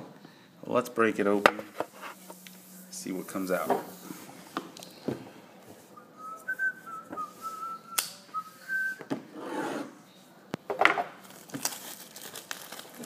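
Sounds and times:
person whistling a tune: 0:06.0 - 0:09.1.

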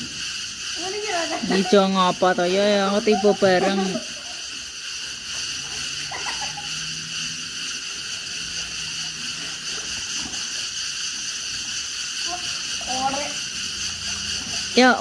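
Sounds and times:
pool water splashing: 0:00.0 - 0:15.0
steady hiss: 0:00.0 - 0:15.0.

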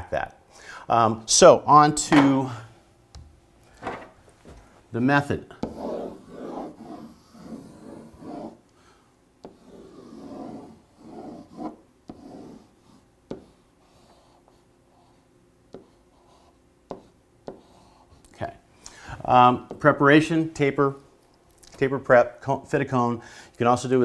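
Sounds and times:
marker rubbing on whiteboard: 0:05.5 - 0:08.6, 0:09.4 - 0:18.2.

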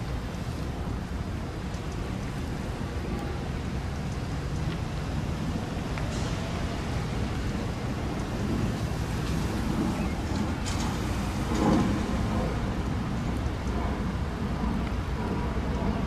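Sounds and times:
freight train rumbling: 0:02.8 - 0:16.0.

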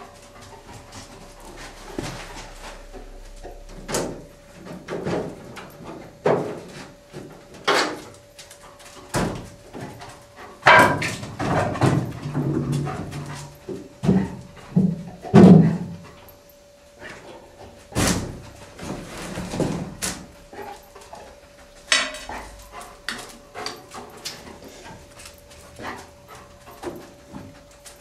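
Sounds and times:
faint steady hum: 0:00.0 - 0:28.0
knocks and rustling among boxes: 0:10.7 - 0:16.0, 0:17.1 - 0:21.3.

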